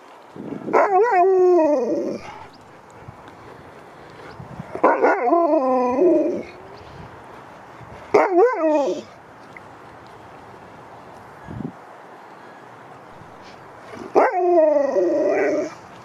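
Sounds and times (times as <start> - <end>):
husky howling: 0.7 - 2.5, 4.7 - 6.8, 8.1 - 9.1, 14.0 - 15.8.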